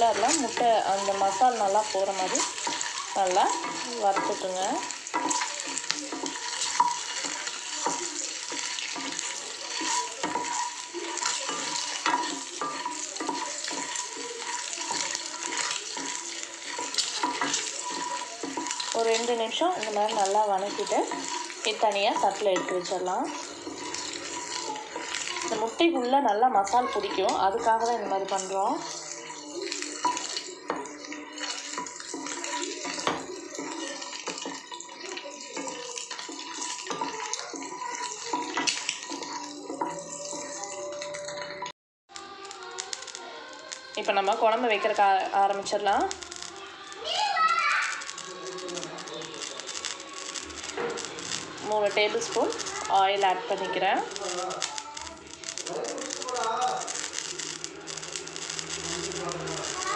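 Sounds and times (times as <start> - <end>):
wooden spatula scraping and knocking pan: 0.0 - 41.4
oil sizzling: 0.0 - 59.9.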